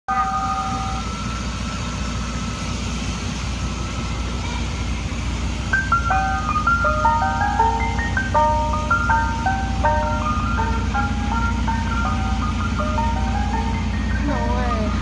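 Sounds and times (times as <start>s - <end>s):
held chime notes: 0.1s - 5.2s, 5.8s - 15.0s
ice cream truck jingle: 0.1s - 15.0s
truck engine rumbling: 0.1s - 15.0s.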